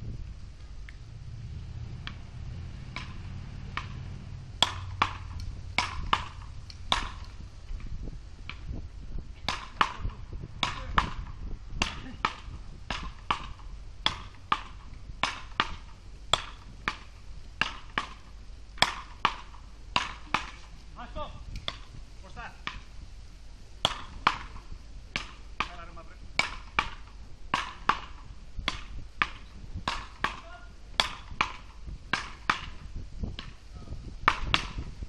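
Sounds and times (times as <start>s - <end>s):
low rumble: 0.0s - 15.2s
paddles striking ball: 2.9s - 7.4s, 9.4s - 20.7s, 23.8s - 32.8s, 34.2s - 34.9s.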